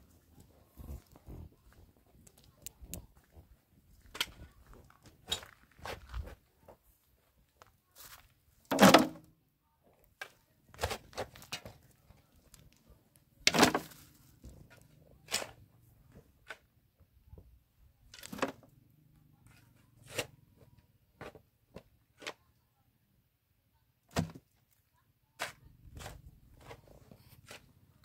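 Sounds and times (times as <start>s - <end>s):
hoe chopping and scraping dirt: 10.7s - 11.7s, 13.5s - 14.1s, 19.5s - 20.3s, 25.4s - 27.8s.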